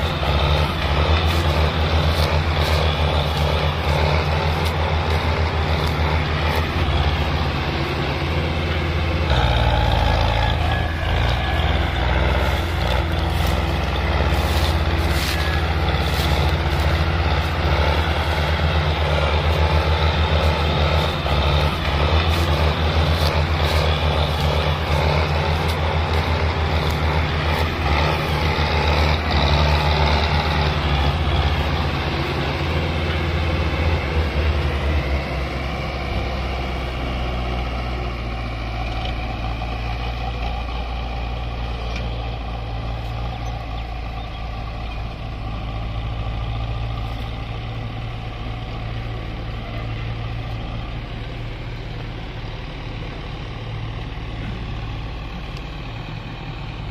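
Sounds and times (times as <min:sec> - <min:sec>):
tractor diesel engines under load: 0:00.0 - 0:56.9.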